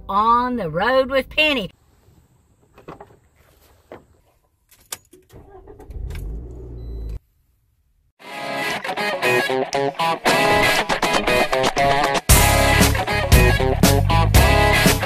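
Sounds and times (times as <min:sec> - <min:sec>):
car engine cranking and idling: 0:05.0 - 0:07.2
guitar music: 0:08.2 - 0:15.0.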